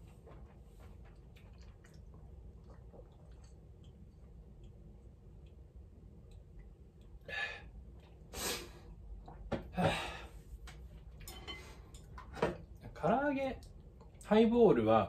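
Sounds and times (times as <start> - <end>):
man exhaling and gasping: 9.7 - 10.4.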